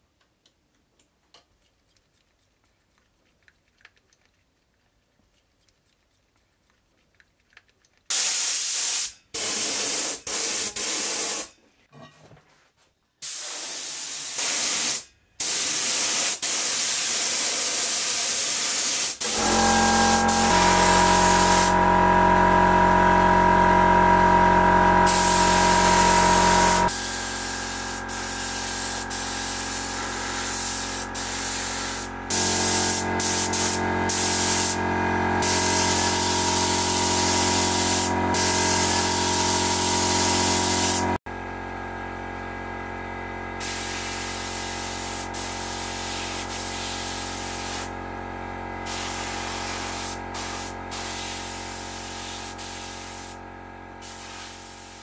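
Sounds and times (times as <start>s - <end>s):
paint spray gun hissing: 8.1s - 11.5s, 13.2s - 21.9s, 23.4s - 41.2s, 43.6s - 48.0s, 48.8s - 53.4s, 54.0s - 55.0s.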